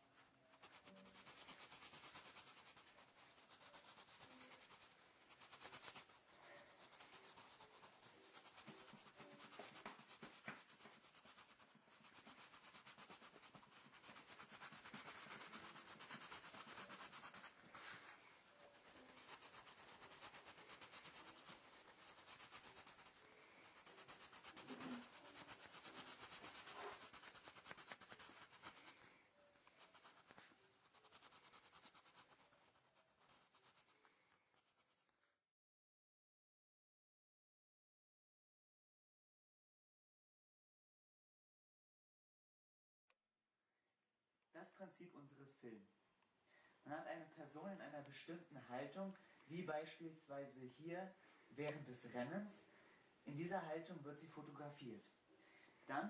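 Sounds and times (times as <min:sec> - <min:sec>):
pencil scratching on paper: 0:00.0 - 0:35.2.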